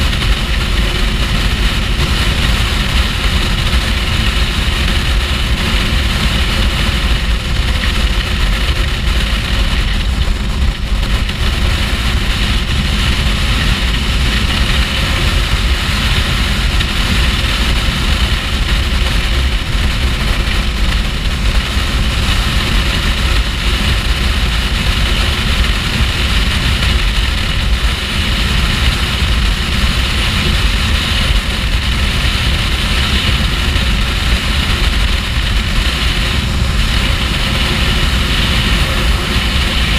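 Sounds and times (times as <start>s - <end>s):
motorcycle engine cruising: 0.0s - 39.9s
wind buffeting microphone: 0.0s - 39.9s.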